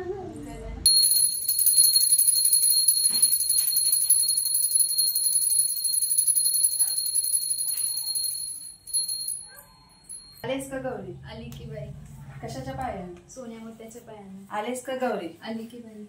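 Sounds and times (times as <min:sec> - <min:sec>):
brass hand bell ringing: 0:00.9 - 0:10.4.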